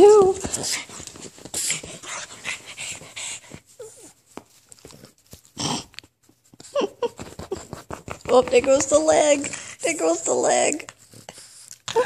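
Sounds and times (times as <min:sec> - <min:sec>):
dog breathing in huffs and snuffles: 0:00.4 - 0:04.1, 0:10.9 - 0:11.9
dog whimpering: 0:06.6 - 0:07.7.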